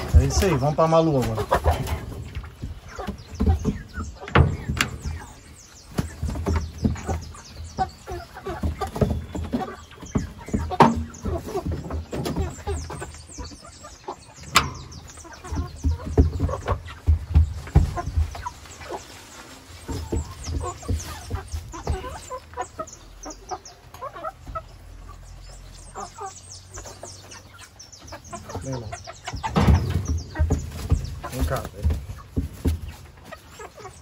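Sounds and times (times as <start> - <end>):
knocks and rustles: 0.0 - 13.6, 14.2 - 22.8, 26.8 - 34.0
chickens clucking: 0.0 - 34.0.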